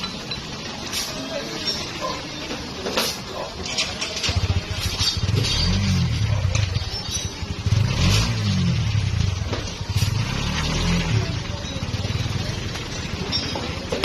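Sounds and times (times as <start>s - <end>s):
vehicle engine revving: 4.3s - 6.7s, 7.5s - 13.2s.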